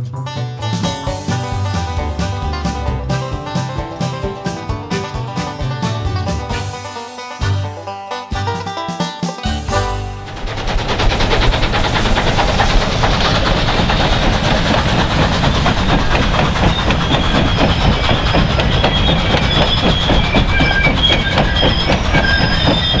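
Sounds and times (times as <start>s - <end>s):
train wheels clacking over rail joints: 0.7s - 23.0s
high-pitched wheel squeals: 16.1s - 23.0s.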